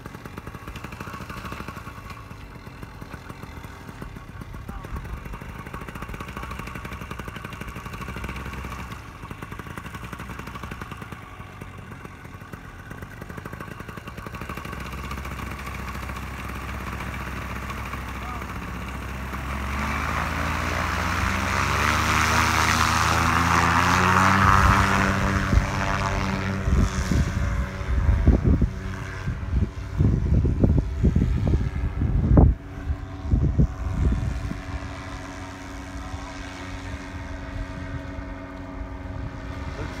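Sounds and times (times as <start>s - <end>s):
paramotor engine and propeller drone: 0.0s - 40.0s
wind buffeting microphone: 23.7s - 35.2s, 36.7s - 40.0s.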